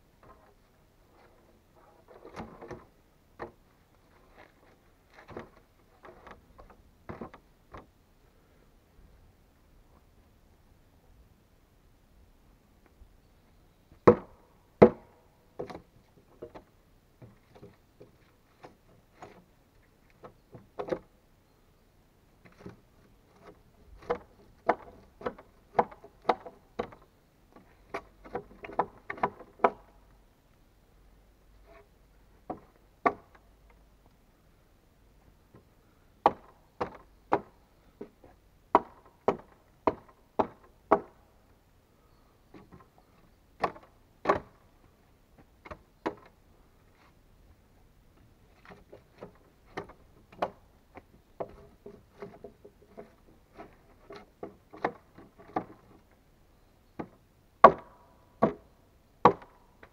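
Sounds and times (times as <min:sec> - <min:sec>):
axe chopping wood: 0:14.0 - 0:15.8, 0:24.0 - 0:27.0, 0:27.9 - 0:29.9, 0:32.5 - 0:33.4, 0:36.2 - 0:37.5, 0:38.7 - 0:41.2, 0:43.6 - 0:44.6, 0:57.0 - 0:58.6, 0:59.2 - 0:59.6.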